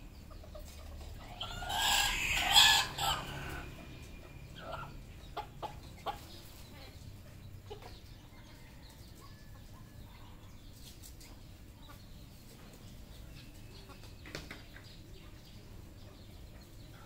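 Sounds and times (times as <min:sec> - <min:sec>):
junglefowl clucking: 0:00.2 - 0:06.5.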